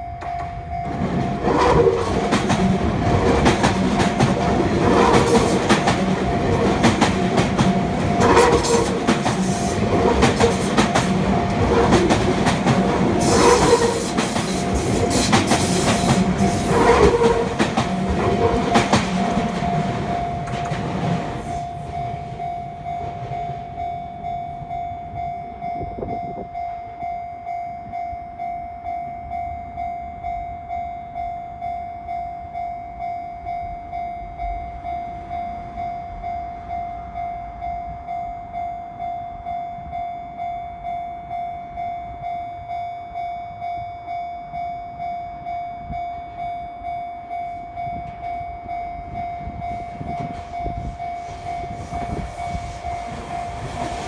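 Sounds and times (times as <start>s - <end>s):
crossing warning bell ringing: 0.0s - 54.0s
train wheels clacking: 0.2s - 23.9s, 49.0s - 54.0s.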